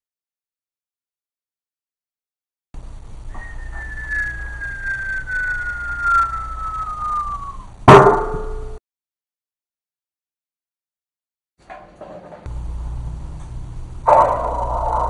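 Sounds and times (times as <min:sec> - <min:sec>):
cartoon falling whistle: 0:03.3 - 0:07.8.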